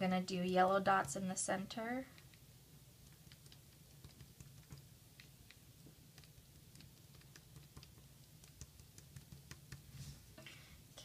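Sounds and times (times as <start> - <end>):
low steady hum: 0.0 - 11.0
cotton swab tapping on paper: 0.9 - 1.2, 3.0 - 9.9.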